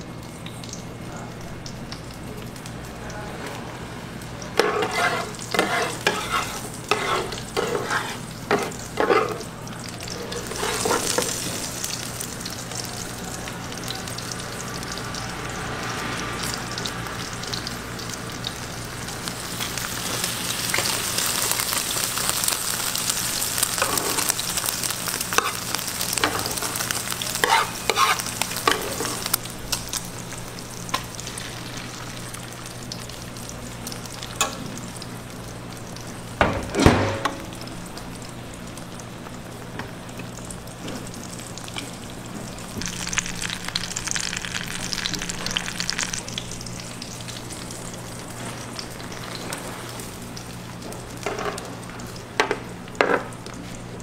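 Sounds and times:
egg sizzling in griddle pan: 3.9 - 54.0
spatulas scraping and tapping pan: 4.6 - 9.4, 27.4 - 29.2.

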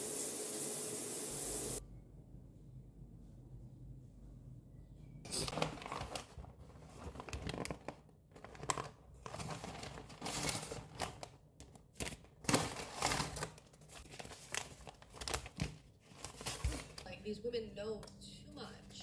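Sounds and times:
paper packaging crinkling: 5.3 - 17.2.

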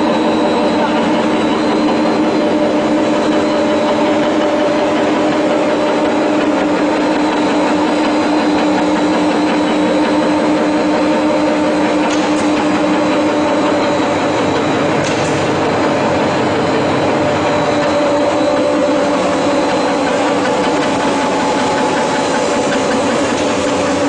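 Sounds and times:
machinery humming: 0.0 - 24.0.

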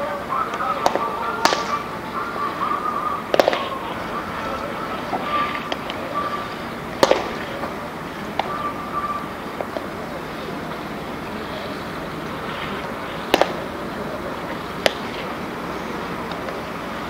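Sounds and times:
outdoor background noise: 0.0 - 17.0
baseball smacking into mitt: 0.8 - 1.8, 3.3 - 3.7, 13.3 - 13.6.

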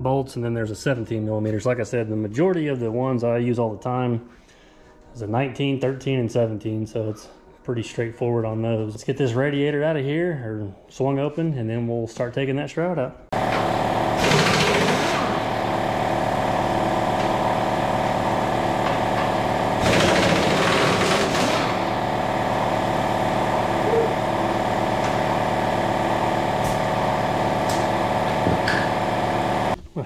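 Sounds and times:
air compressor motor humming: 13.3 - 29.8.

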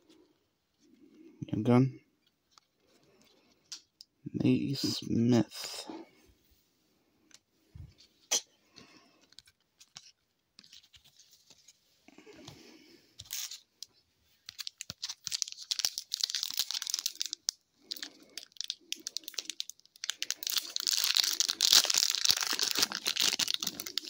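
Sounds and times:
cards rustling: 13.2 - 13.7, 14.4 - 24.0
wrapper crackling as torn open: 14.5 - 24.0.

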